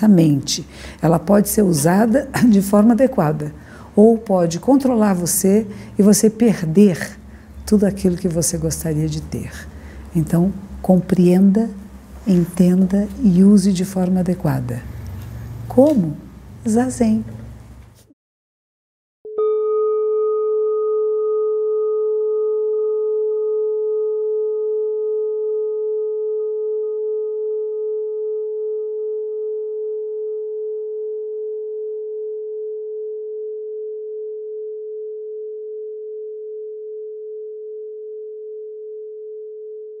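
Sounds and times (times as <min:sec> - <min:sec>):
bowl bell ringing: 0:19.3 - 0:23.8.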